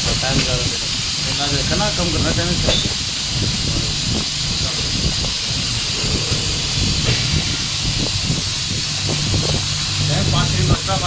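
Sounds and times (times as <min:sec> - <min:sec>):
steady hiss: 0:00.0 - 0:11.0
low hum: 0:04.7 - 0:10.6.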